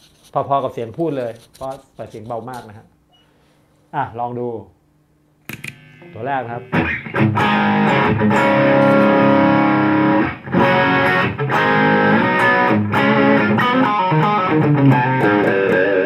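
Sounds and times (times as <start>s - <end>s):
overdriven electric guitar chords: 5.5s - 16.0s.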